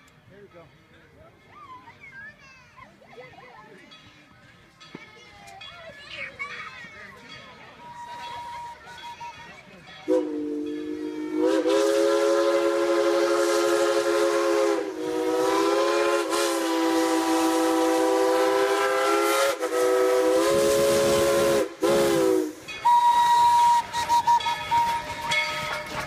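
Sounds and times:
steam locomotive chime whistle: 7.7s - 9.4s, 10.0s - 26.0s.

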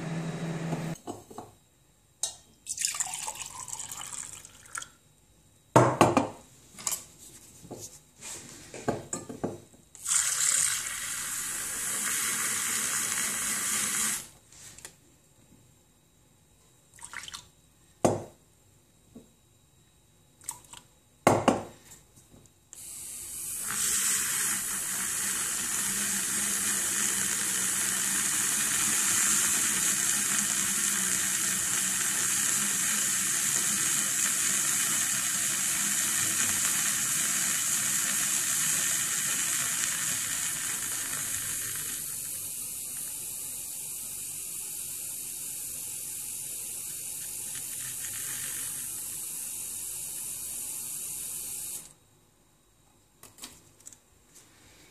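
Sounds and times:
milk frother whirring: 0.0s - 1.0s, 10.0s - 14.3s, 22.8s - 51.9s.

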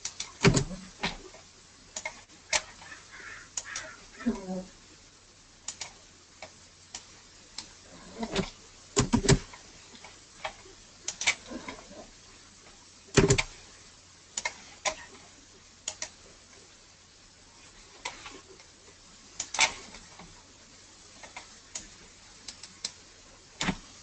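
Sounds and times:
mouse and keyboard clicks: 2.0s - 2.8s, 5.7s - 7.7s, 14.4s - 15.0s, 15.9s - 16.2s.

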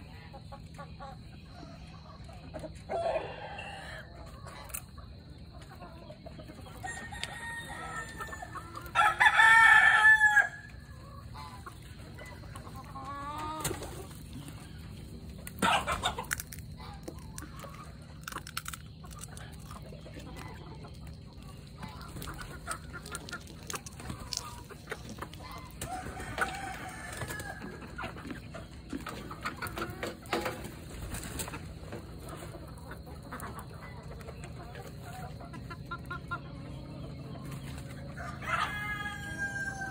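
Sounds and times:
chickens clucking: 0.0s - 39.9s
rooster crowing: 6.8s - 10.8s, 25.6s - 27.9s, 38.1s - 39.9s.

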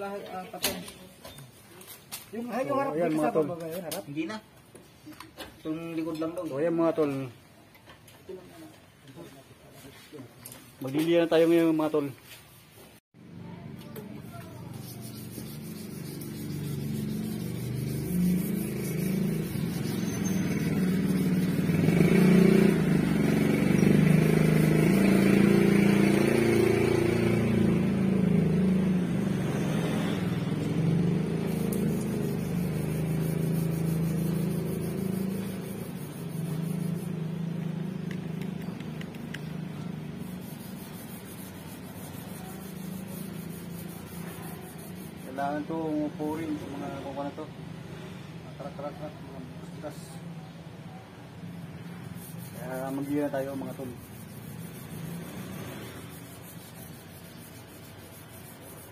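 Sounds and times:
vehicle engine rumbling: 13.2s - 47.2s, 49.8s - 58.9s.

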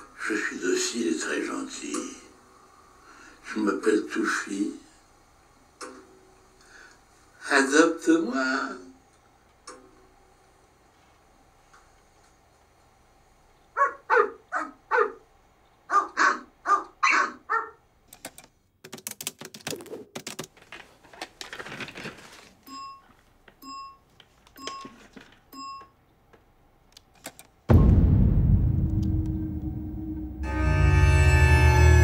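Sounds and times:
small dog yapping: 13.8s - 15.2s, 15.9s - 17.8s
run of clicks: 18.1s - 20.8s.

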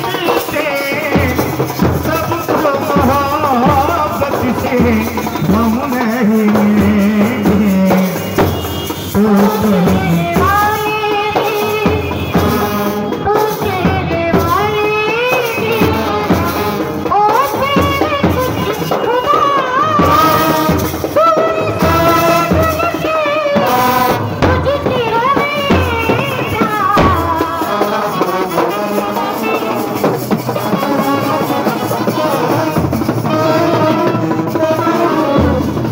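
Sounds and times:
large bass drum beats: 0.9s - 14.8s.

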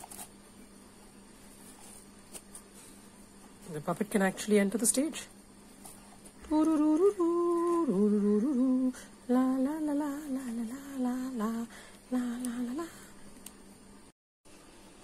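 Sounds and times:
woman humming: 6.4s - 13.3s.

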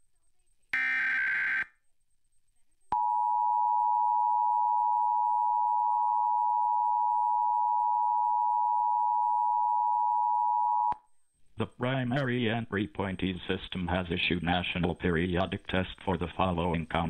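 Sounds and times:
dual-tone alert signal: 0.8s - 1.7s.

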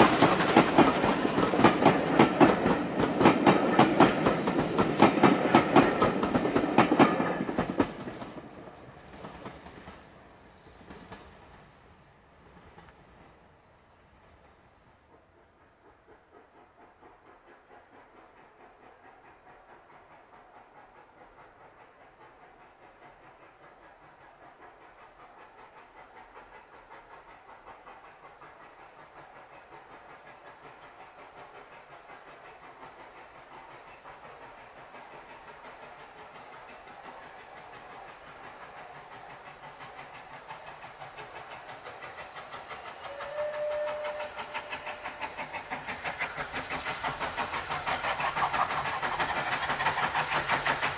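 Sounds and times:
steam locomotive chugging: 0.0s - 50.9s
train whistle: 43.0s - 45.6s.

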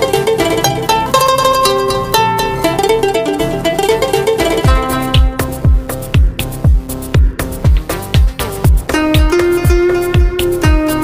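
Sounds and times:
held melody notes: 0.0s - 11.0s
steady drum beat: 2.7s - 11.0s.

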